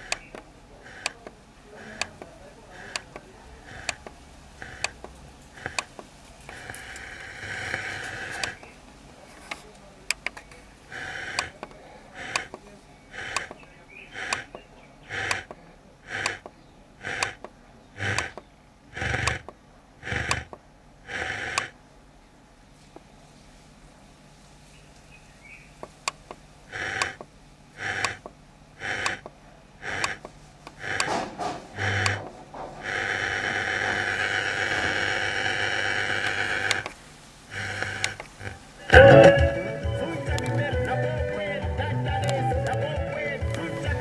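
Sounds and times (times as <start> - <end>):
radio static bursts: 0.0 - 5.0, 5.6 - 9.6, 10.4 - 16.4, 18.0 - 18.4, 31.8 - 40.9
radio tuning clicks: 0.0 - 21.8, 25.8 - 44.0.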